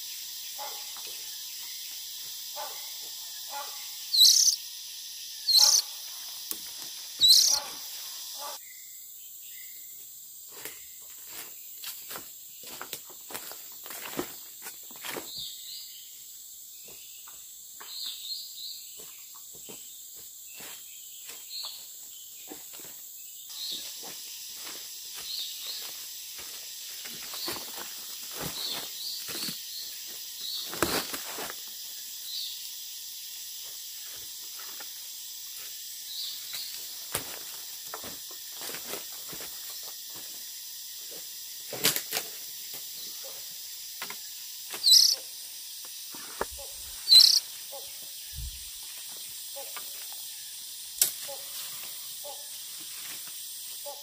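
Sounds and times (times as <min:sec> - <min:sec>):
forest insects droning: 0:00.0 - 0:54.0
footsteps in dry leaves: 0:23.7 - 0:31.8
twigs snapping: 0:51.0 - 0:51.4.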